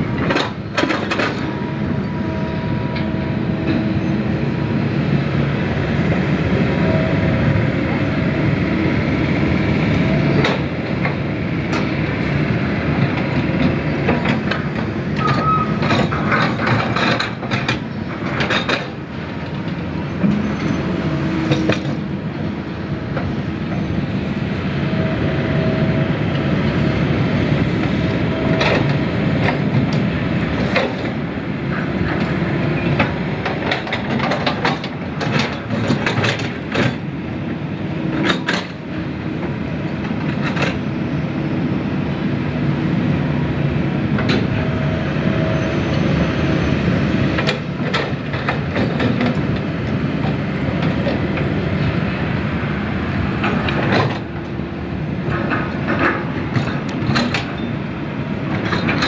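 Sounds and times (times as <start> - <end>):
excavator engine drone: 0.0 - 59.0
excavator buckets knocking and clanking: 0.1 - 1.6, 9.9 - 12.0, 13.0 - 22.2, 28.3 - 37.1, 38.1 - 40.9, 44.1 - 44.9, 47.4 - 52.2, 53.3 - 54.6, 55.2 - 59.0.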